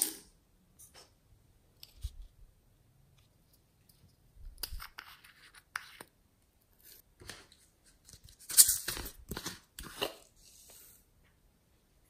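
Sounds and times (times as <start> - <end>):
plastic jars clicking and scraping: 7.2 - 10.7.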